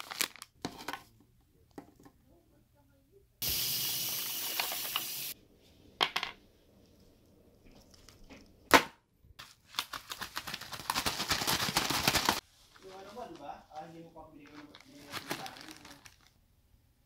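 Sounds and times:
packaging crinkling: 0.0 - 0.6, 9.4 - 13.4, 14.4 - 16.4.

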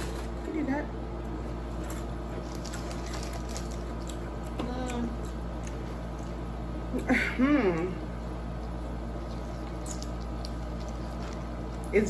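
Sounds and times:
cereal crunching as chewed: 1.7 - 6.4, 9.3 - 11.9.

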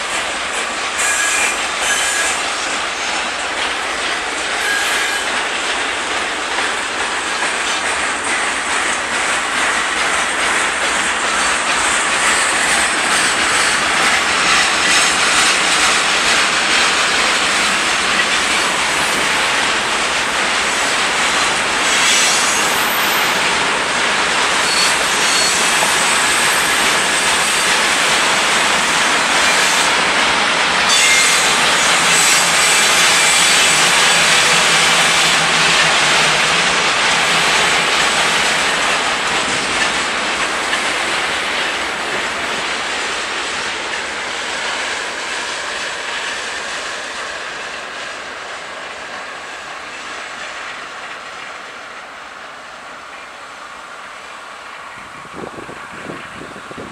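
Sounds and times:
train wheels rolling on rails: 0.0 - 56.9
faint high wheel squeal: 1.0 - 3.2, 4.6 - 5.4, 24.6 - 27.0.

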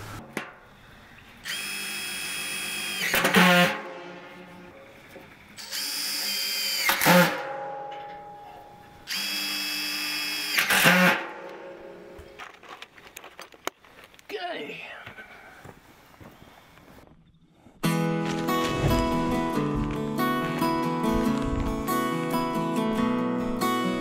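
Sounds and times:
cordless drill whining: 1.4 - 3.6, 5.6 - 7.3, 9.1 - 11.2
drill rattle: 9.1 - 11.3.

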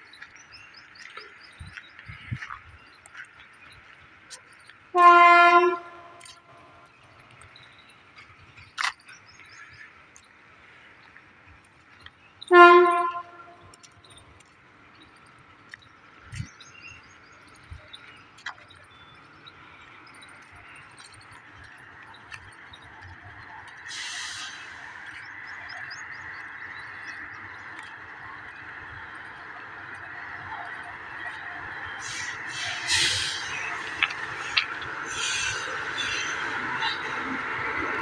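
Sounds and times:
electric locomotive horn blasts: 5.0 - 6.2, 12.5 - 13.7.

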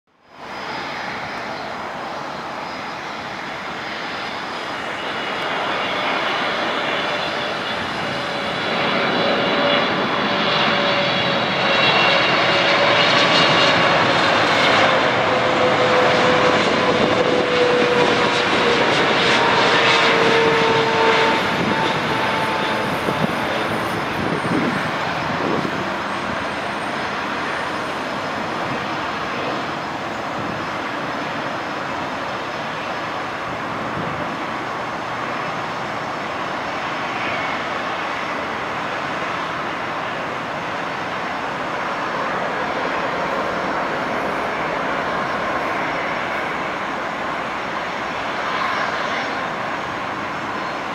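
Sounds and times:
jet airliner roar: 0.1 - 50.9
jet engine whine: 0.1 - 50.9.

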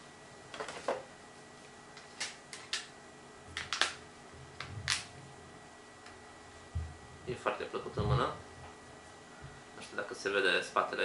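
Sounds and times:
soft low bumps: 6.7 - 7.4.

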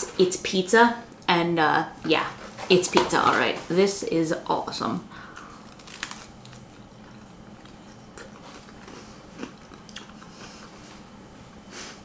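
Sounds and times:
person chewing pizza: 5.2 - 12.0.

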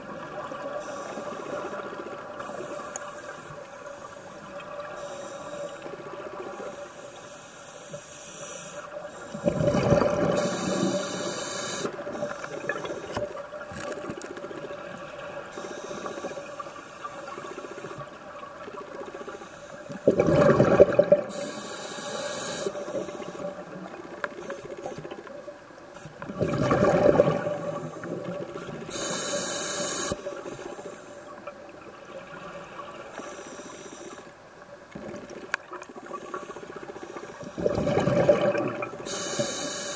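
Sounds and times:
regulator inhalation hiss: 0.7 - 1.8, 2.5 - 9.4, 10.4 - 13.2, 15.5 - 18.0, 21.3 - 23.6, 28.9 - 31.4, 33.1 - 34.3, 39.0 - 39.9
exhaled bubbles rumbling: 9.4 - 11.0, 20.0 - 21.4, 26.2 - 28.9, 37.5 - 39.1.

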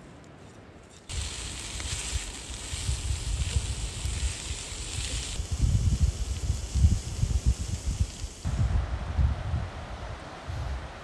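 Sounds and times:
steady high hiss: 0.4 - 11.0
wind buffeting microphone: 1.1 - 11.0.

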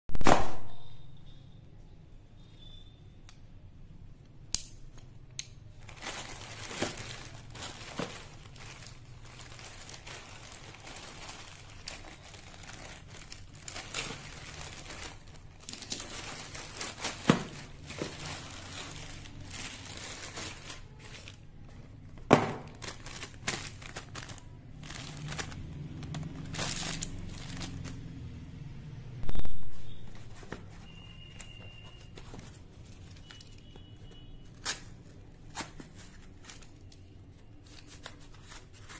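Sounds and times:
plastic mailer bag crinkling: 5.7 - 28.2.

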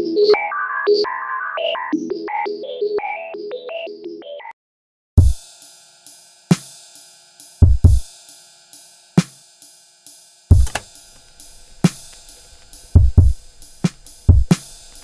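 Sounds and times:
kick drum hits: 7.6 - 8.0, 10.5 - 10.9, 13.0 - 13.4, 14.3 - 14.6
held chords: 10.5 - 15.0.

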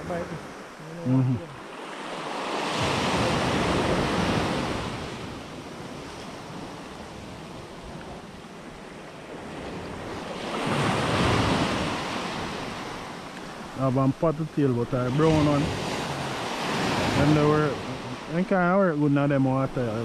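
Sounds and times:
sea surf breaking on beach: 0.0 - 20.0.

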